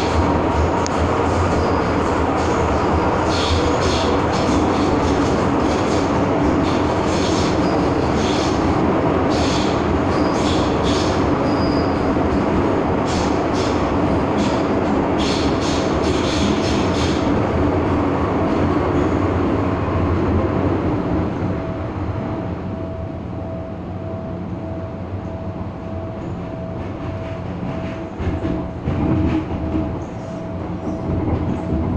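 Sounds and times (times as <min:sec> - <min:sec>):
train wheels rumbling: 0:00.0 - 0:31.9
wheel squeals: 0:09.3 - 0:12.1.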